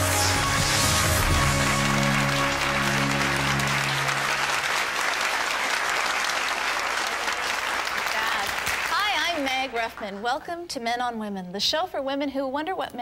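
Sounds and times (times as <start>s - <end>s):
theme music held notes: 0.0s - 5.1s
studio audience applause: 0.0s - 10.2s.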